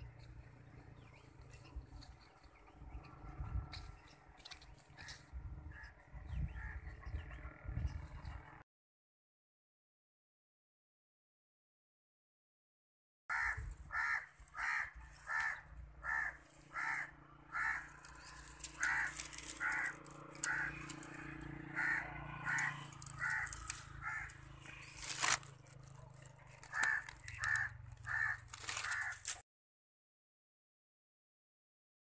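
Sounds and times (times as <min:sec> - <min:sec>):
dry twigs rustling: 0:13.4 - 0:29.4.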